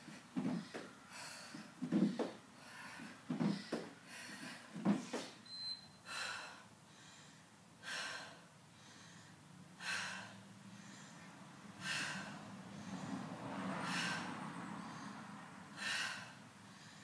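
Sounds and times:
woman breathing hard: 0.0s - 5.4s, 6.0s - 17.0s
feet thudding on step: 0.4s - 0.9s, 1.8s - 2.4s, 3.3s - 4.0s, 4.8s - 5.4s.

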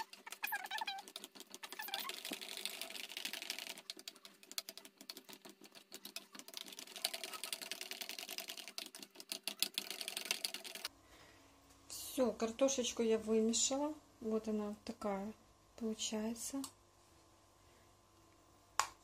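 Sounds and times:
metal utensil beating mashed potatoes: 0.0s - 10.9s.

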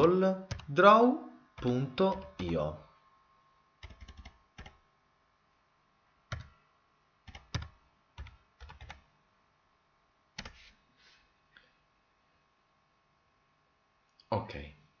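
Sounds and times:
typing on a keyboard: 0.4s - 0.7s, 1.6s - 2.6s, 3.8s - 4.8s, 6.3s - 6.6s, 7.3s - 9.1s, 10.4s - 10.6s.

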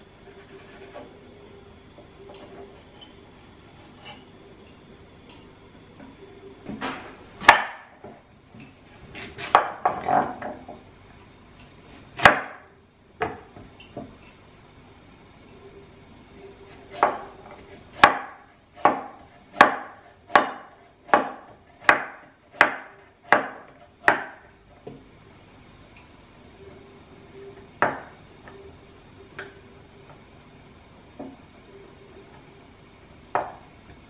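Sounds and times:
knife chopping on wooden board: 9.2s - 10.3s, 16.8s - 24.4s.

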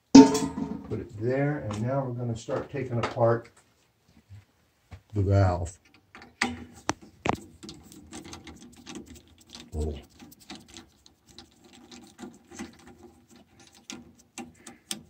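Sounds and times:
screwdriver clicking and scraping on metal: 5.9s - 15.0s.

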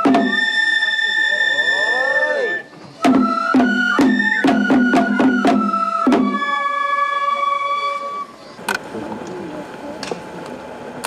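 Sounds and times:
drum strikes: 0.0s - 0.4s, 3.0s - 6.4s
high flute long notes: 0.0s - 8.6s.

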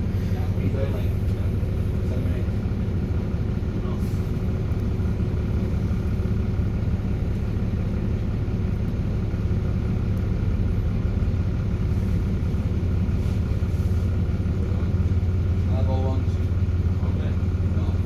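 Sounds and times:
bus diesel engine idling: 0.0s - 18.0s
engine cooling fan whine: 0.0s - 18.0s.

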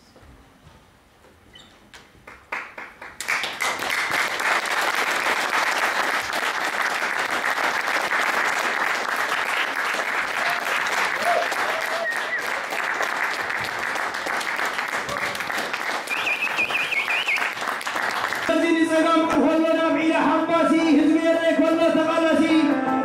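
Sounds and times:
audience applauding: 2.2s - 18.9s.

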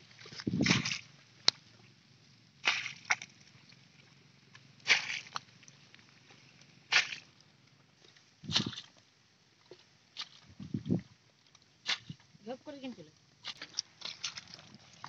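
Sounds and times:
splashes in muddy water: 0.5s - 1.1s, 2.6s - 3.4s, 4.8s - 5.4s, 6.9s - 7.3s, 8.5s - 9.0s, 11.8s - 12.2s, 13.4s - 15.0s.

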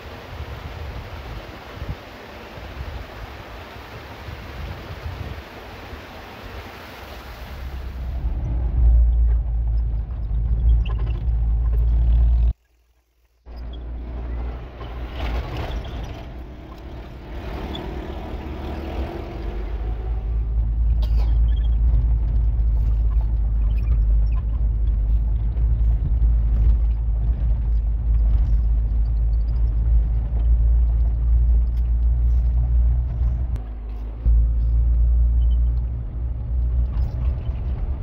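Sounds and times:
vehicle engine and tyres rumbling: 0.0s - 38.0s
passing pickup truck: 13.6s - 20.8s
knocks and rattles from bumps: 20.4s - 34.3s.

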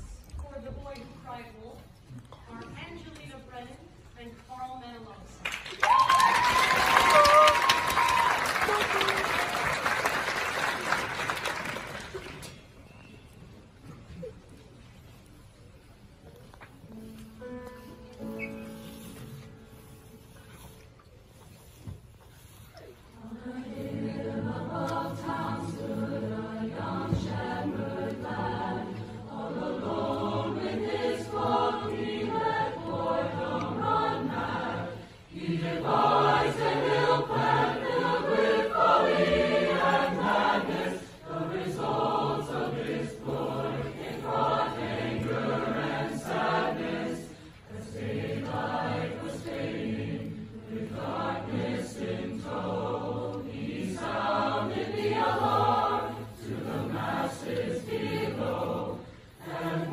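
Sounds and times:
choir singing: 23.1s - 59.9s.

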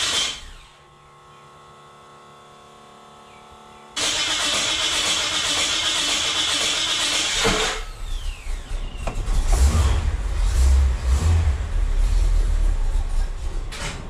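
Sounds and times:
engine rumbling: 0.0s - 14.0s
starter motor grinding: 4.0s - 11.0s.

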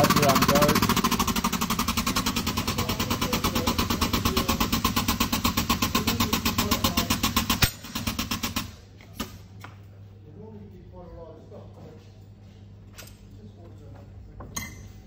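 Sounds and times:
foot pump pulsing: 0.0s - 8.7s.

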